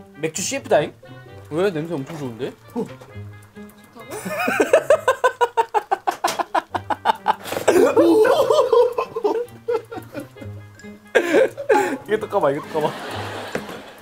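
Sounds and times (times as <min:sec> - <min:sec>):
men laughing hard: 0:04.1 - 0:14.0.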